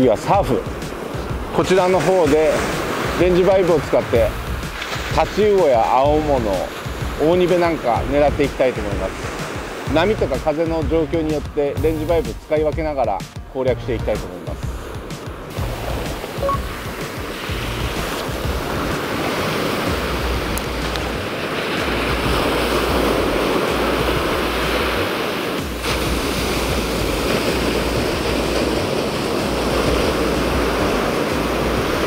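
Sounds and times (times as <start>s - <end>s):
ocean surf breaking: 0.0s - 32.0s
wind gusting on microphone: 14.5s - 32.0s.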